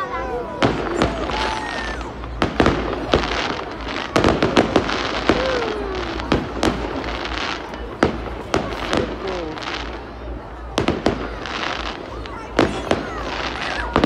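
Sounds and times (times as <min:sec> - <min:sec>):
fireworks bursting with sharp bangs: 0:00.0 - 0:14.0
fireworks crackling hiss: 0:00.0 - 0:14.0.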